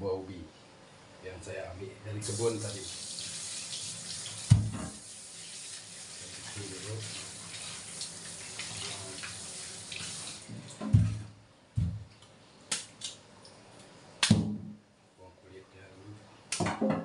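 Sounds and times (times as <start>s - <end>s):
heavy thumps in sink: 4.5s - 5.0s, 10.8s - 11.2s.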